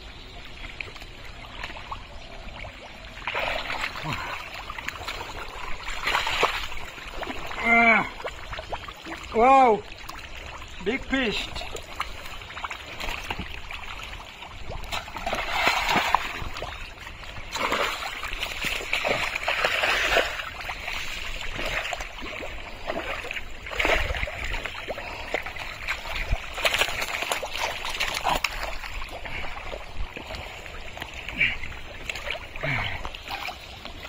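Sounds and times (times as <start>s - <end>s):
mud splashes: 0.5s - 34.0s
hands sloshing through mud: 3.2s - 9.0s, 11.6s - 34.0s.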